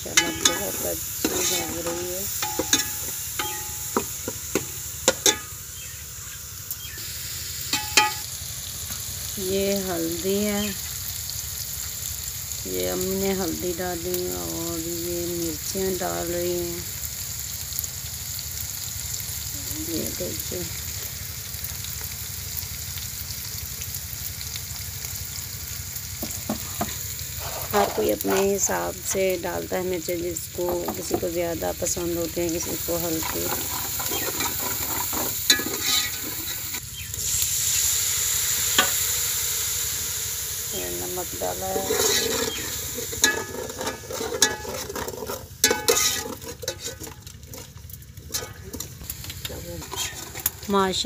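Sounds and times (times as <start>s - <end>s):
metal ladle scraping a pot: 0.0s - 5.5s, 27.4s - 28.6s, 32.7s - 36.8s, 41.7s - 47.7s, 48.3s - 48.9s, 49.8s - 50.7s
masala sizzling in a pot: 0.0s - 51.0s.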